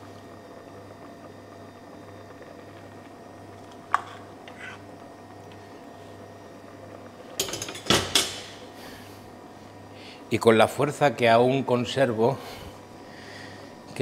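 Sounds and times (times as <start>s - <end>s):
utensils clattering and knocking: 7.4s - 8.4s.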